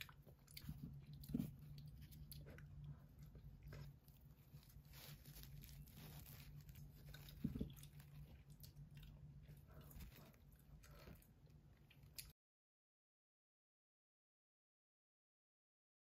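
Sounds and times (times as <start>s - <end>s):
low steady hum: 0.0s - 12.4s
paper tissue rustling: 4.2s - 8.2s.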